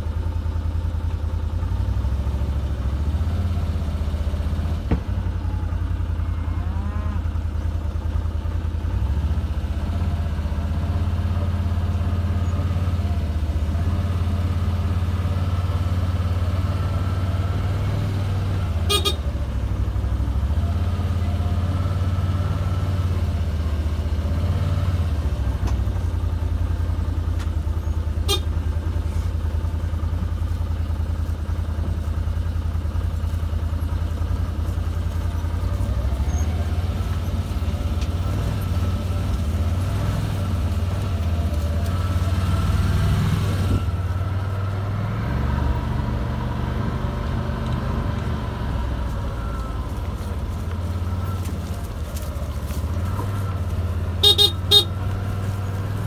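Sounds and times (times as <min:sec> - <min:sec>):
farm vehicle engine running: 0:00.0 - 0:56.0
short horn toots: 0:18.8 - 0:19.3, 0:28.2 - 0:28.6, 0:54.2 - 0:55.0.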